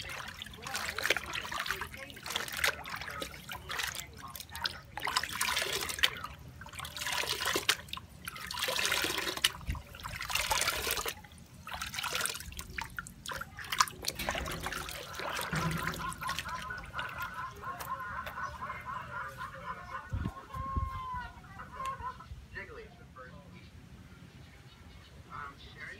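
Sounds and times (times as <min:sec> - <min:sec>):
hands splashing water in tub: 0:00.0 - 0:19.6
water trickling: 0:00.0 - 0:21.2.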